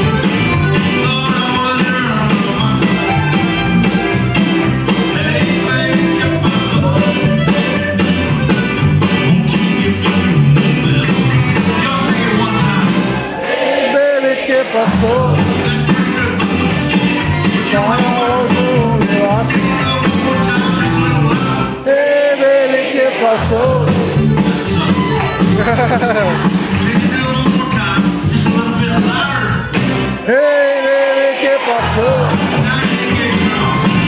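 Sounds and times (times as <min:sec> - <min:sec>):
electric guitar: 0:00.0 - 0:13.3, 0:15.2 - 0:21.8, 0:23.5 - 0:30.3
bass guitar: 0:00.0 - 0:13.4, 0:14.9 - 0:21.9, 0:23.4 - 0:30.4, 0:31.8 - 0:34.0
accordion: 0:00.0 - 0:13.5, 0:14.1 - 0:30.5, 0:32.0 - 0:34.0
drums: 0:00.0 - 0:13.6, 0:14.9 - 0:21.9, 0:23.2 - 0:30.4, 0:31.8 - 0:34.0
keyboard: 0:00.0 - 0:13.7, 0:14.7 - 0:22.2, 0:23.3 - 0:30.8, 0:31.6 - 0:34.0.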